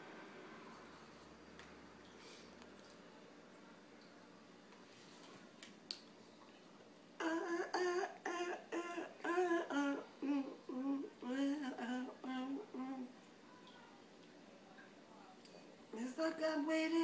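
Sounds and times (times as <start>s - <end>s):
woman singing wordless tune: 7.2s - 13.2s, 15.9s - 17.0s.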